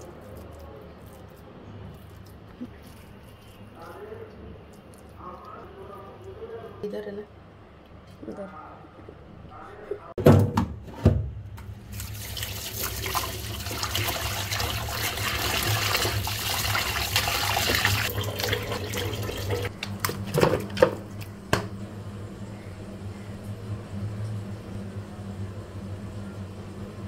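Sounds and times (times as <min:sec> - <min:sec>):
tap water splashing over meat: 0:12.0 - 0:20.9
steady low hum: 0:19.7 - 0:27.0.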